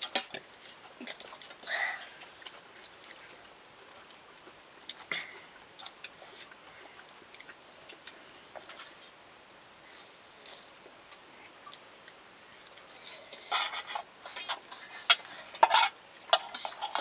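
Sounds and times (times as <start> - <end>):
faint chewing: 0.1 - 9.2
utensils clicking on dishes: 12.9 - 17.0.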